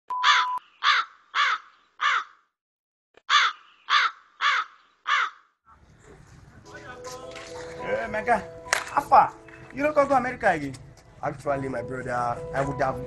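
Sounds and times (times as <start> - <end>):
short test-pattern beep: 0.1 - 0.6
harsh crow-like cawing: 0.2 - 2.5, 3.3 - 5.6.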